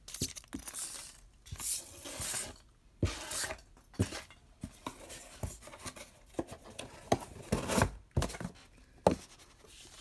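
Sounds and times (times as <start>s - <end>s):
taps and knocks in cardboard box: 6.3s - 9.4s.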